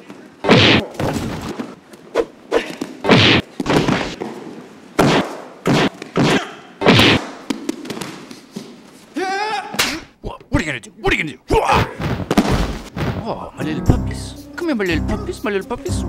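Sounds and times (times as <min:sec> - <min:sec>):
punch and kick hits: 0:00.4 - 0:01.5, 0:03.0 - 0:04.2, 0:05.0 - 0:07.3, 0:11.8 - 0:13.2
person crying out: 0:09.2 - 0:09.8.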